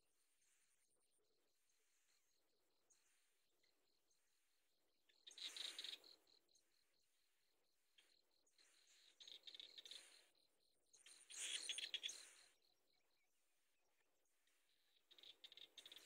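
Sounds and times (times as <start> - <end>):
nestlings chirping: 11.2 - 12.3.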